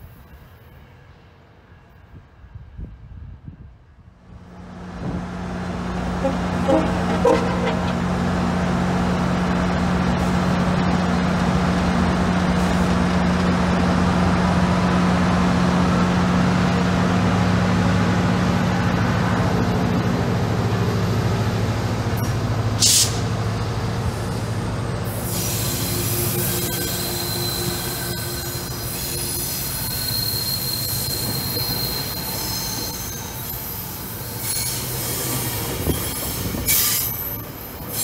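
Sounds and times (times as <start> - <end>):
diesel locomotive engine drone: 0.0 - 38.0
sharp hiss of air: 22.8 - 23.3, 25.1 - 26.5
train wheels squealing: 25.1 - 38.0.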